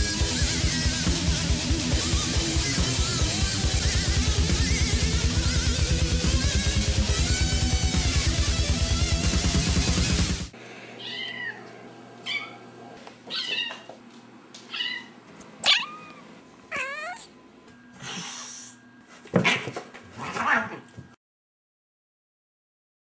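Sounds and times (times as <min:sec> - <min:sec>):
heavy rock music: 0:00.0 - 0:10.6
cat meowing: 0:11.0 - 0:12.6, 0:13.3 - 0:13.9, 0:14.7 - 0:17.4.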